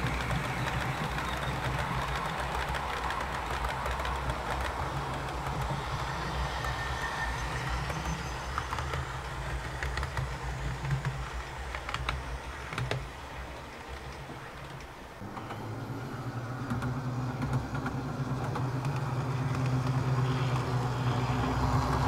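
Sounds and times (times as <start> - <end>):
wheels clicking over track: 0.0 - 22.0
model train motor hum: 15.2 - 22.0.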